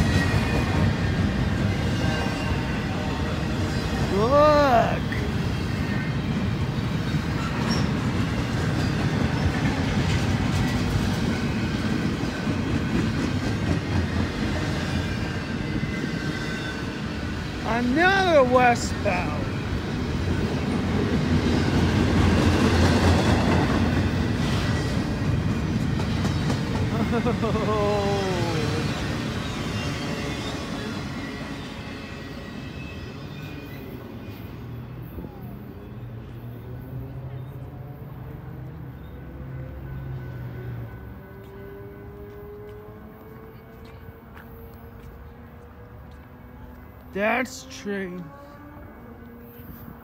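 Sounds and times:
freight train rolling past: 0.0s - 50.0s
freight train wheels clattering on rails: 5.1s - 17.4s, 19.5s - 27.6s.

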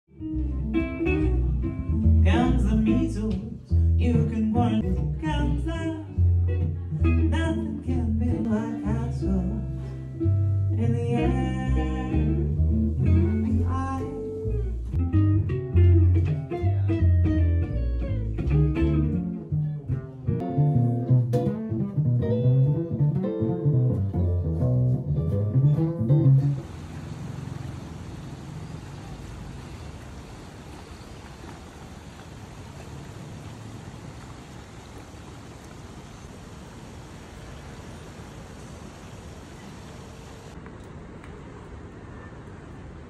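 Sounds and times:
plucked double bass: 0.1s - 26.6s
guitar: 0.1s - 26.7s
woman singing: 2.2s - 6.2s, 7.0s - 9.8s, 10.8s - 12.4s, 13.2s - 14.3s.

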